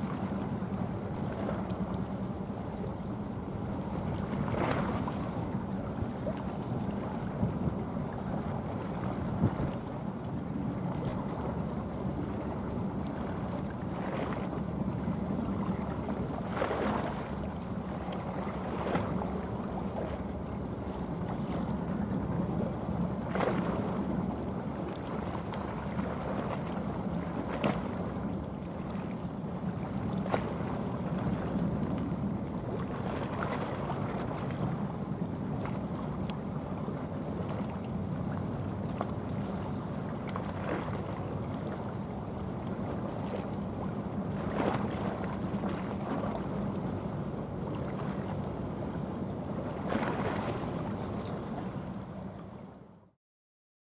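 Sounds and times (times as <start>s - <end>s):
water splashes: 0.0s - 52.6s
boat diesel engine drone: 0.0s - 53.1s
wind on microphone: 3.8s - 17.4s.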